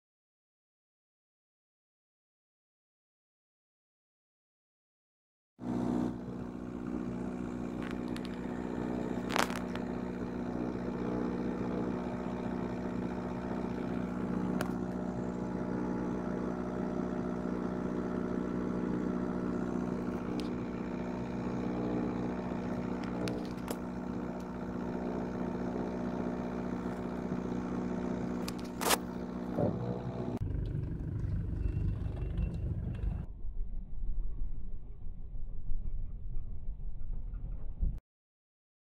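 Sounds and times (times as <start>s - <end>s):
engine idling: 5.6s - 33.3s.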